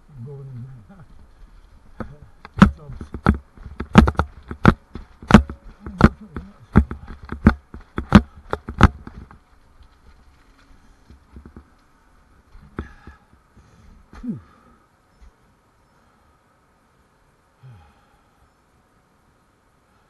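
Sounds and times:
footsteps on hard surface: 0:01.1 - 0:11.8.

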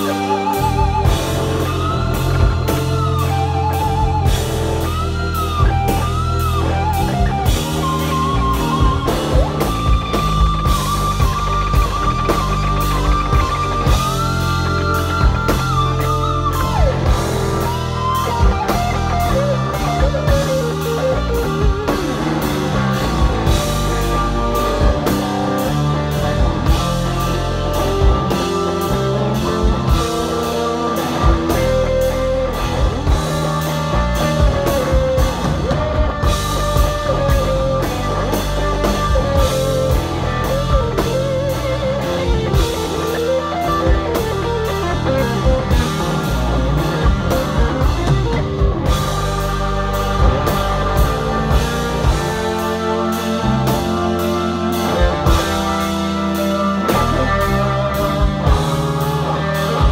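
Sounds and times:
drum kit playing: 0:00.0 - 0:59.9
electric guitar solo: 0:00.0 - 0:59.9.

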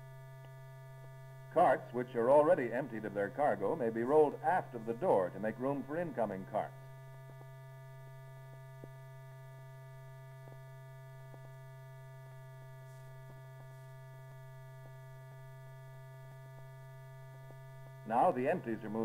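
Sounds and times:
faint electrical hum: 0:00.0 - 0:19.0.

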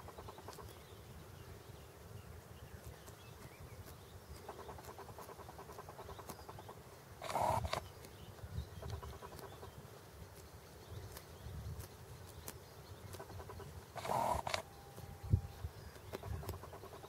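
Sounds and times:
goose plucking grass: 0:03.8 - 0:08.2, 0:11.1 - 0:15.2, 0:15.9 - 0:17.0
goose rasp: 0:07.2 - 0:07.8.

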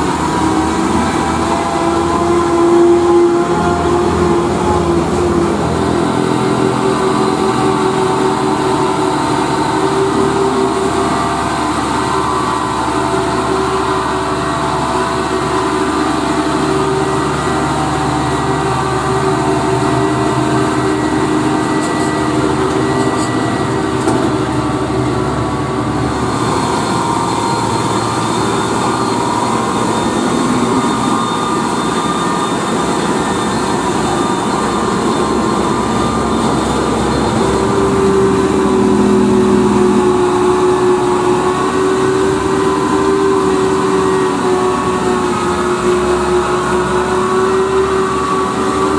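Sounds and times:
diesel truck engines passing: 0:00.0 - 0:48.9.

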